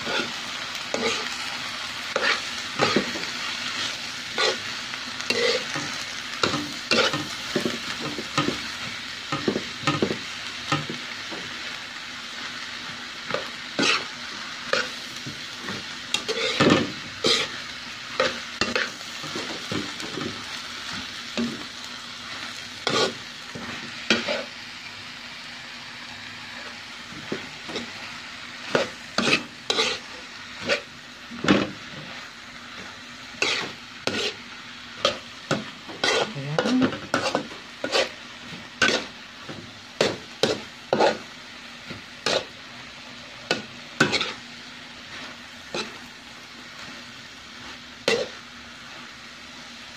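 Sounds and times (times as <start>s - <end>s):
cabbage sizzling in a pan: 0.0s - 49.9s
metal utensil scraping a pan: 16.1s - 17.6s, 28.7s - 30.9s, 33.4s - 34.4s, 35.0s - 38.2s, 38.8s - 39.1s, 40.0s - 41.2s, 43.5s - 44.4s.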